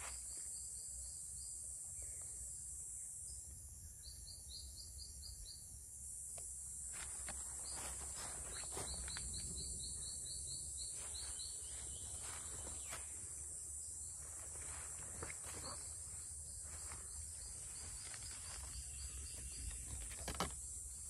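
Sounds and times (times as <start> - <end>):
insects trilling: 0.0 - 21.0
leaves and stems rustling: 14.2 - 20.7.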